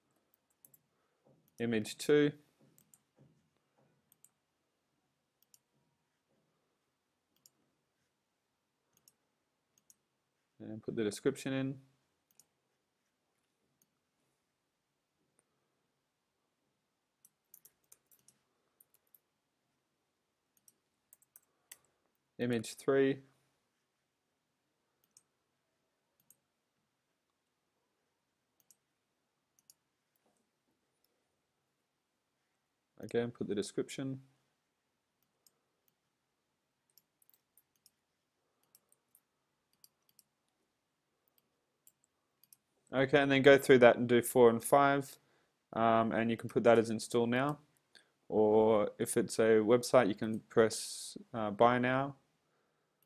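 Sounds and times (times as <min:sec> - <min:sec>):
keyboard and mouse clicks: 0:00.3 - 0:01.7, 0:02.6 - 0:04.4, 0:07.3 - 0:07.6, 0:08.9 - 0:09.2, 0:17.2 - 0:19.3, 0:20.6 - 0:22.2, 0:25.0 - 0:25.3, 0:28.6 - 0:28.8, 0:29.6 - 0:30.4, 0:36.9 - 0:38.0, 0:38.6 - 0:40.3.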